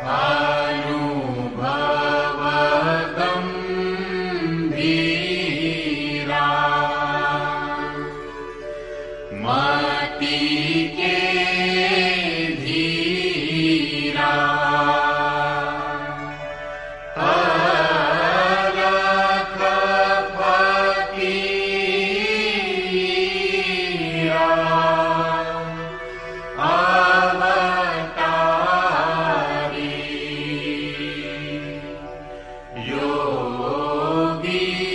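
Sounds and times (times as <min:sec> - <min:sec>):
person chanting a hymn: 0:00.0 - 0:34.9
steady drone: 0:00.0 - 0:34.9.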